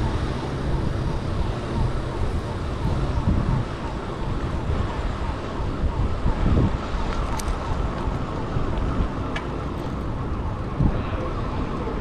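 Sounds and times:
wind rumbling on microphone: 0.0s - 12.0s.

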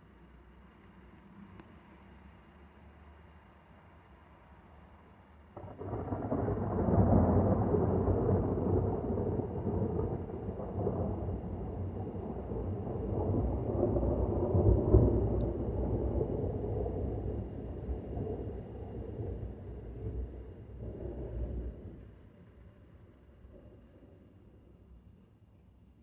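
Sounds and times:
thunder rumble: 5.6s - 24.4s.

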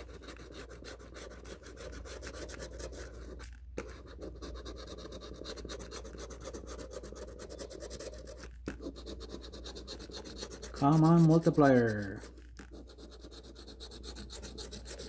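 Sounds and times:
coin scratching ticket: 0.0s - 15.0s.

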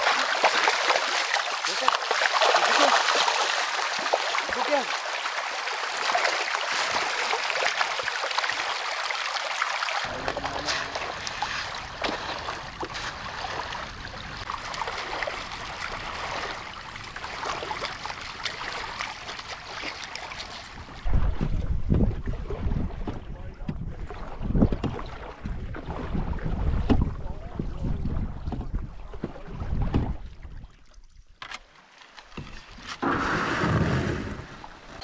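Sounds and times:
creek running and trickling: 0.0s - 21.1s.

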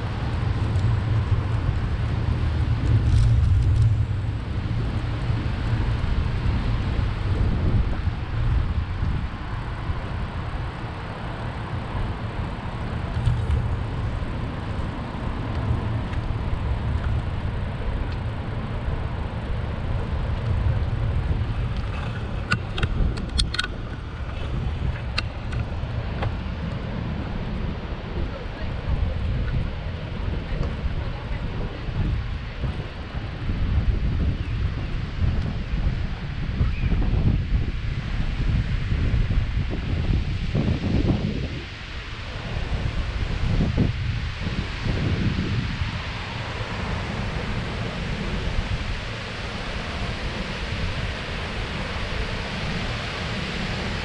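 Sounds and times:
bicycle riding rumble: 0.0s - 54.0s
road traffic: 0.0s - 54.0s
sharp clicks and rattles: 21.8s - 24.0s.

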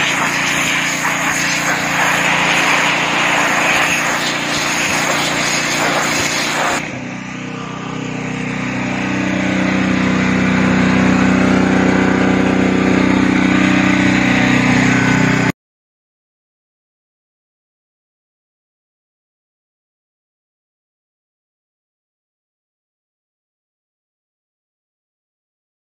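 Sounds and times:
high-pressure jet hissing on wood: 0.0s - 6.8s
pressure washer engine running: 0.0s - 15.5s.

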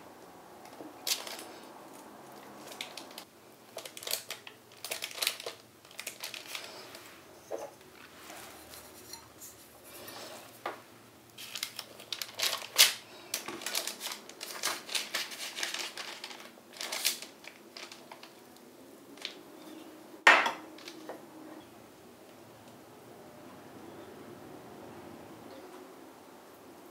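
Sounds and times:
baking paper crinkling: 0.7s - 10.6s, 11.3s - 19.5s
knife scraping baking tray: 7.5s - 10.6s.

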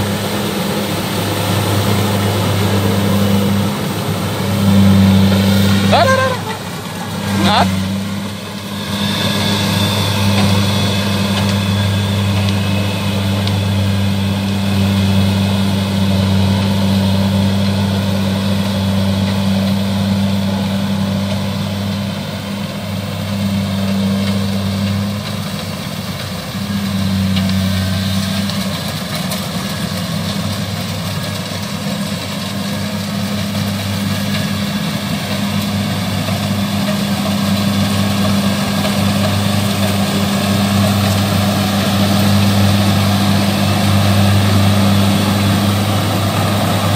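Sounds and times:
combine harvester diesel engine: 0.0s - 46.9s.

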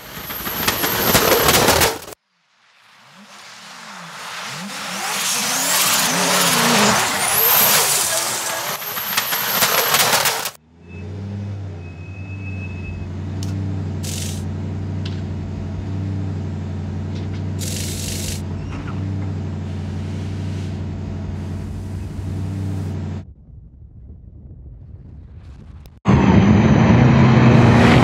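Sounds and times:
air hiss bursts: 17.6s - 18.4s.

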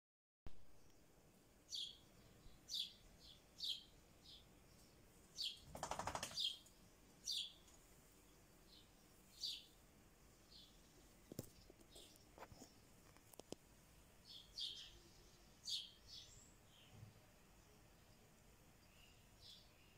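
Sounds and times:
bird high chirps: 1.7s - 4.4s, 5.4s - 7.6s, 14.3s - 17.0s.

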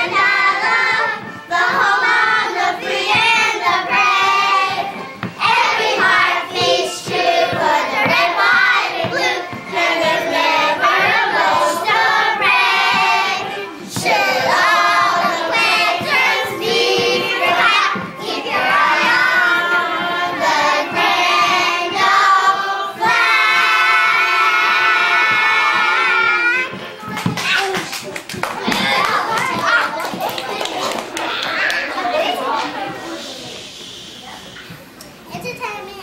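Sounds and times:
children singing together: 0.0s - 26.8s.

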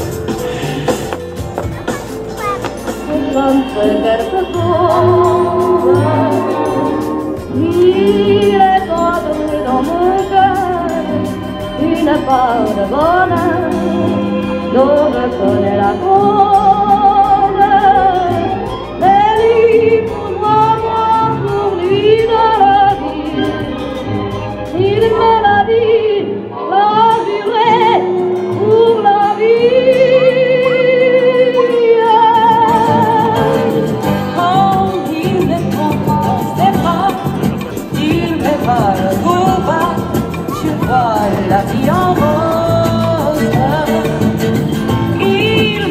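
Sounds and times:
music accompaniment: 0.0s - 45.9s
person singing long notes: 0.3s - 24.2s.

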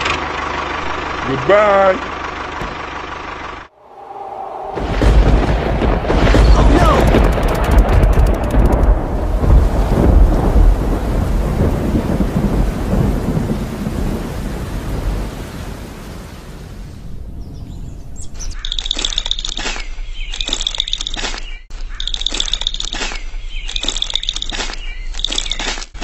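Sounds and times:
rolling thunder: 3.8s - 18.3s
heavy rain: 4.7s - 17.4s
birds chirping: 17.1s - 25.8s.

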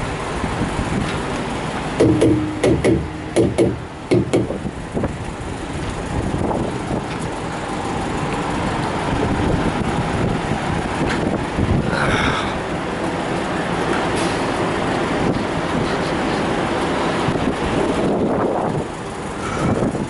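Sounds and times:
rumble of vehicle engines and traffic: 0.0s - 20.0s
short hollow thumps: 2.0s - 4.7s.

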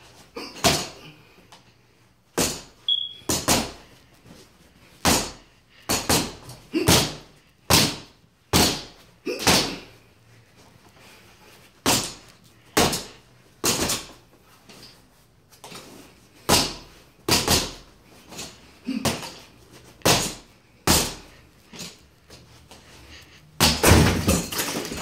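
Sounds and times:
boxing gloves hitting reflex bag: 0.5s - 1.0s, 2.4s - 3.8s, 5.0s - 9.9s, 11.8s - 14.2s, 16.4s - 19.4s, 20.0s - 21.3s, 23.6s - 25.0s.

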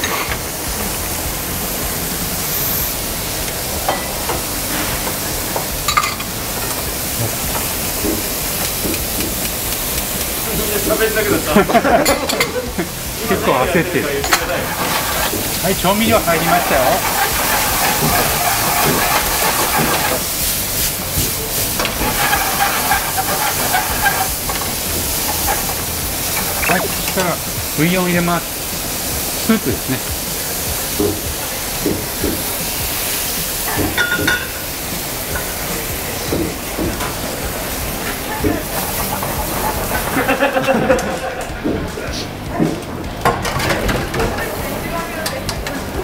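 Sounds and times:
food frying in a pan: 0.0s - 46.0s
steam hissing: 0.0s - 46.0s
utensils tapping: 5.0s - 12.9s, 14.2s - 27.4s, 33.7s - 34.6s
chopsticks stirring: 6.0s - 27.9s, 37.6s - 42.9s.

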